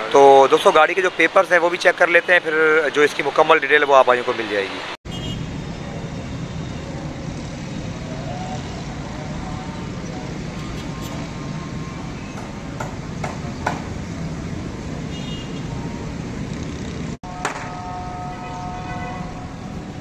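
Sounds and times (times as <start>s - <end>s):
vehicle engine rumble: 5.1s - 20.0s.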